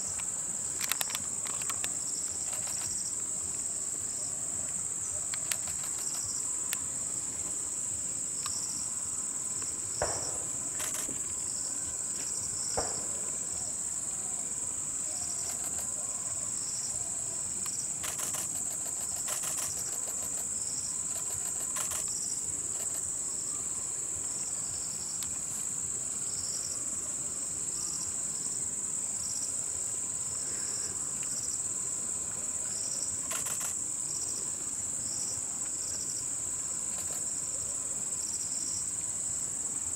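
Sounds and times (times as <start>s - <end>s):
faint ticks: 0.1s - 3.6s, 5.3s - 6.9s, 9.6s - 11.4s, 17.6s - 20.5s, 21.1s - 23.1s, 33.2s - 33.8s, 36.9s - 37.3s
high-pitched insect drone: 4.9s - 26.9s
insect calling in short pulses: 17.6s - 23.1s.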